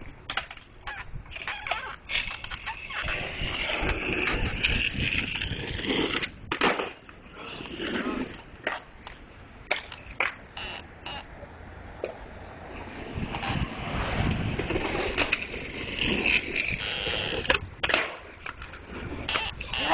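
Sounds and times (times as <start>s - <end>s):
skateboard knocks and clatters: 0.0s - 7.2s, 9.6s - 10.5s, 13.3s - 19.9s
skateboard clacking on ground: 0.0s - 10.7s, 12.8s - 19.9s
skateboard wheels rolling on pavement: 0.0s - 19.9s.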